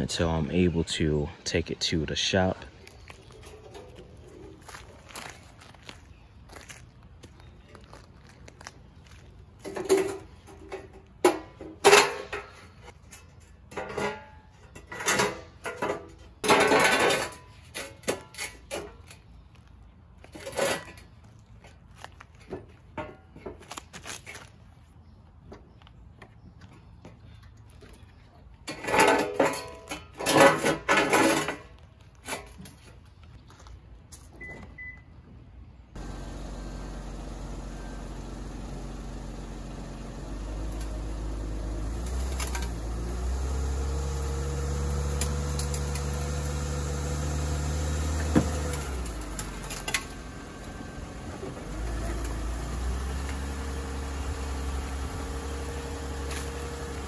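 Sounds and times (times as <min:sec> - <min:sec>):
car engine revving and idling: 0:36.0 - 0:57.0
knocks and scrapes of car ramps: 0:38.2 - 0:57.0.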